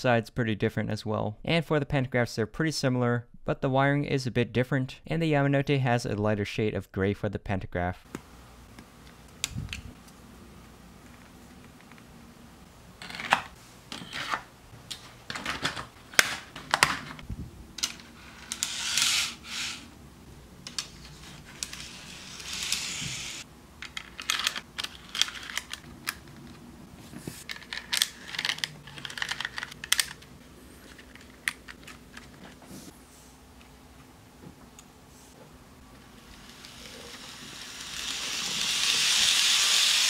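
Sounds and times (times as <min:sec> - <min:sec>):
plastic pieces scraping on track: 0:17.8 - 0:19.8, 0:20.7 - 0:26.6, 0:27.4 - 0:30.2
plastic clicks and clacks: 0:27.4 - 0:30.3.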